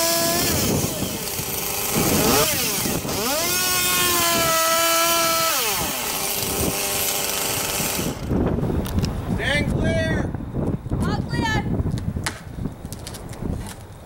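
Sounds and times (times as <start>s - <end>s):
chainsaw cutting and revving: 0.0s - 8.4s.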